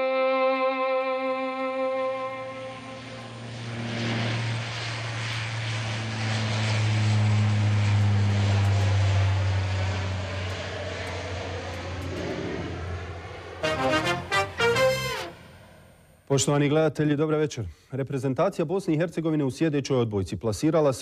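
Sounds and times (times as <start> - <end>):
airliner taking off: 0.0 - 16.3.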